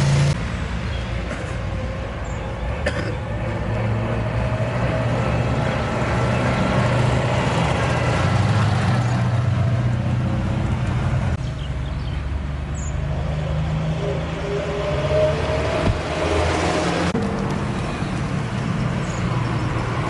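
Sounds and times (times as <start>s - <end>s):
higher noise: 13.1s - 17.9s.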